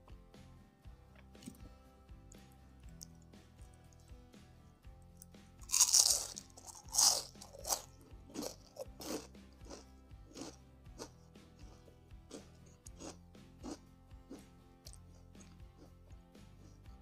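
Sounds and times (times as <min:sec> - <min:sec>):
crunchy bite into fried snack: 0:05.6 - 0:11.1, 0:11.7 - 0:15.6
crunchy chewing: 0:05.6 - 0:16.8.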